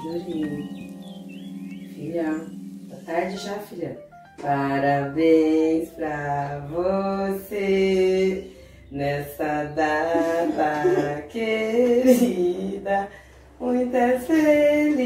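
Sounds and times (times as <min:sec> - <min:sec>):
low accompanying notes: 0:00.0 - 0:12.8
person singing: 0:04.4 - 0:13.0, 0:13.6 - 0:15.0.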